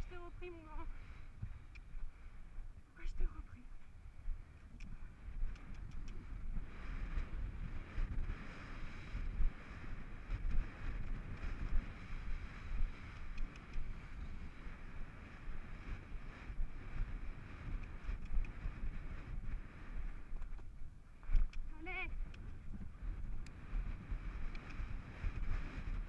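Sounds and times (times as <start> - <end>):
wind buffeting microphone: 0.0 - 26.0
faint clicks: 0.8 - 2.2, 4.6 - 6.8, 12.9 - 14.0, 17.7 - 18.7, 20.4 - 22.5, 23.4 - 23.6, 24.4 - 24.9.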